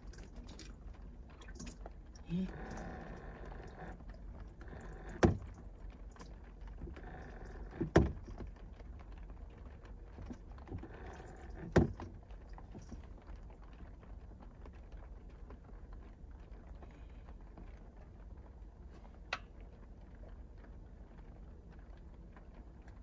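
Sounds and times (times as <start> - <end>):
small water pump running weakly: 0.0 - 8.5, 9.8 - 13.2.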